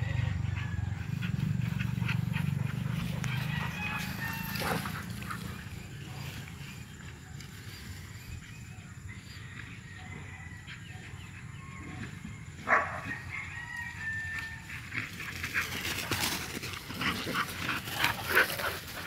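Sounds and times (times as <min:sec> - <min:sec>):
rooster crowing: 0:00.0 - 0:01.2, 0:03.1 - 0:05.2, 0:09.1 - 0:14.8.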